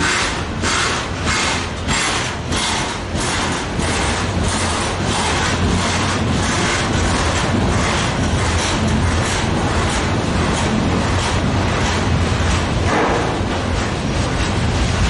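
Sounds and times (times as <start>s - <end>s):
rhythmic pulsing hiss: 0.0s - 15.0s
train wheels rumbling on rail: 0.0s - 15.0s.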